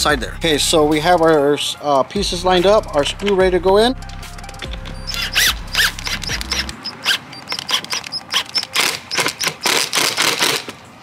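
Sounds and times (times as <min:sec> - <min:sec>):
impact driver driving screw: 0:04.8 - 0:10.8.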